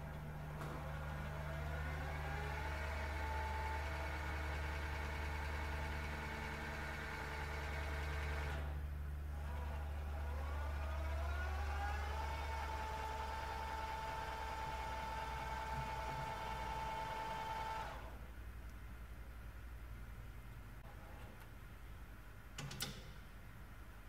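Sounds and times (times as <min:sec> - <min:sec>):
mill spindle motor whine: 0:00.0 - 0:18.2.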